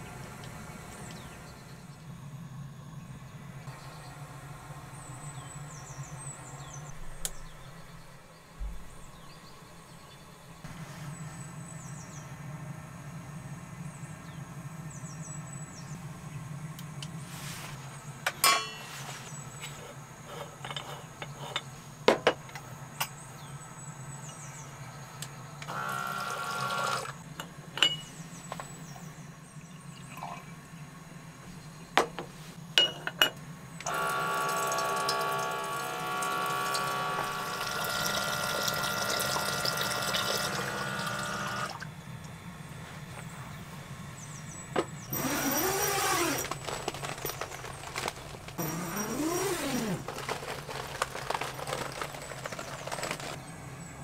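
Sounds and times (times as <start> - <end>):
metal cookware clinking: 18.4 - 19.1, 27.8 - 28.1, 32.8 - 33.4
steady low hum: 27.1 - 54.0
water pouring: 34.5 - 41.8.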